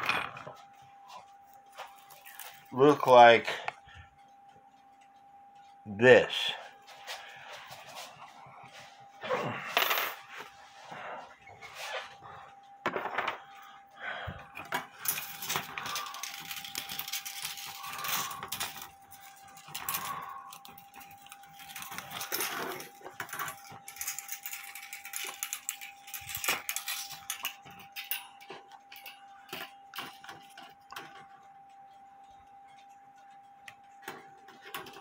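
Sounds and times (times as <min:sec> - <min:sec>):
metal spring clinking and rattling: 0:14.6 - 0:31.1.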